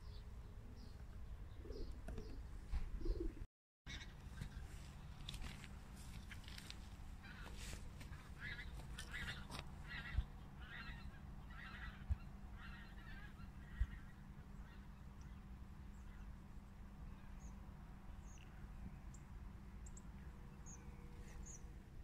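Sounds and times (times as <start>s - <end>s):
honking bird calls: 7.2s - 14.9s.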